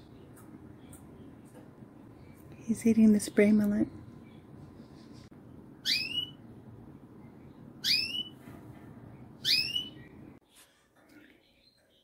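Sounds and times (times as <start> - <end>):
canary chirp calls: 5.8 - 6.4, 7.8 - 8.4, 9.4 - 10.2.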